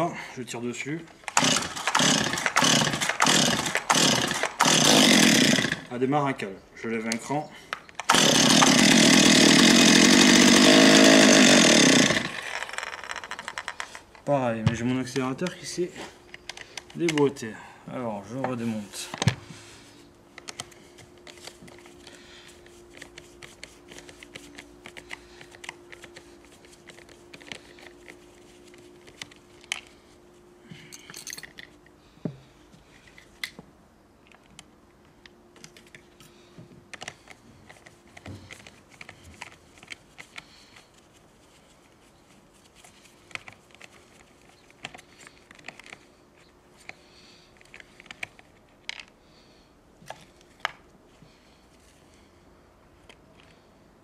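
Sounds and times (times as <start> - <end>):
hands and tools clicking and scraping: 12.1 - 17.5, 20.3 - 30.2, 34.2 - 49.2
faint steady hum: 13.6 - 54.0.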